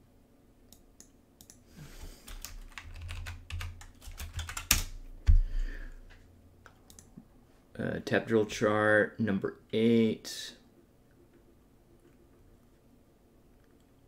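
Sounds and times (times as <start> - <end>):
keyboard typing clicks: 0.7 - 1.6, 2.3 - 4.9, 6.6 - 7.1.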